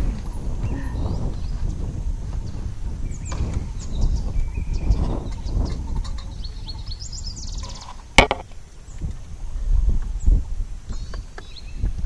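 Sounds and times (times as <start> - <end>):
birds chirping: 2.4 - 9.1.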